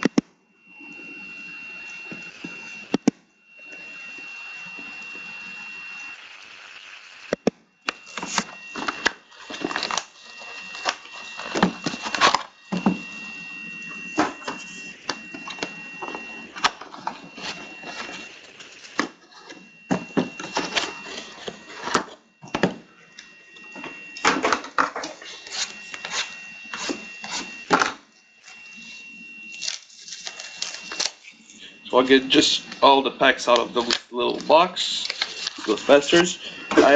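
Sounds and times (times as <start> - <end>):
cardboard and foil rustling: 8.0 - 13.0, 16.0 - 22.2, 29.6 - 31.3, 32.0 - 36.9.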